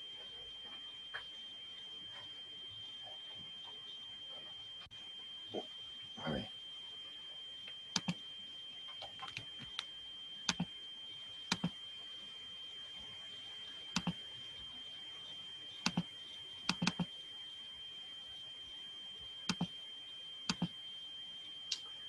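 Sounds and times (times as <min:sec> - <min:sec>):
faint high-pitched whine: 0:00.0 - 0:22.0
computer mouse clicks: 0:08.0 - 0:08.2, 0:09.0 - 0:09.9, 0:10.5 - 0:10.7, 0:11.5 - 0:11.7, 0:14.0 - 0:14.2, 0:15.8 - 0:16.1, 0:16.7 - 0:17.1, 0:19.5 - 0:19.7, 0:20.5 - 0:20.7.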